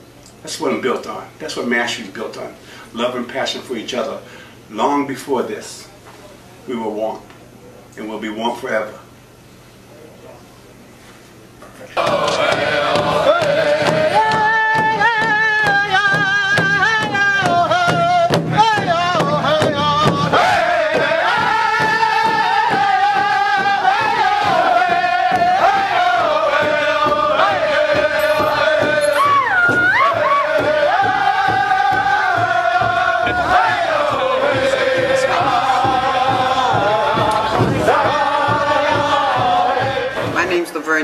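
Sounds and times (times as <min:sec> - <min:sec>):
person singing chant-like melody: 0:12.0 - 0:40.5.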